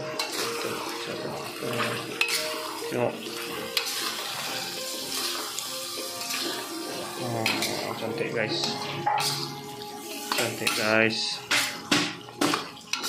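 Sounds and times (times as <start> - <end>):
metal spatula scraping pan: 0.0 - 2.8, 8.5 - 11.9
faint background music: 0.0 - 13.0
sauce bubbling and sizzling in wok: 0.0 - 13.0.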